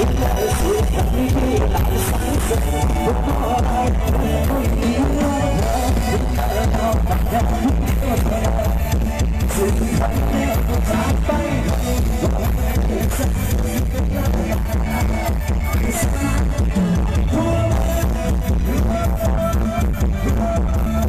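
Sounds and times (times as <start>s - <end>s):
loud dance music over loudspeakers: 0.0s - 21.0s.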